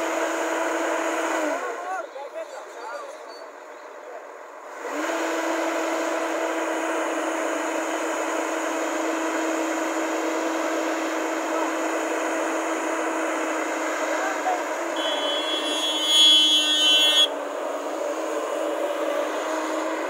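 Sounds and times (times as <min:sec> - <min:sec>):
excavator engine and hydraulics: 0:00.0 - 0:20.0
hydraulic whine: 0:04.7 - 0:20.0.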